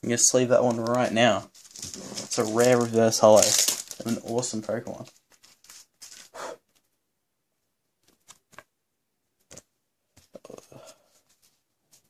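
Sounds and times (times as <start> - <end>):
card sleeve rustling: 0.6 - 6.9.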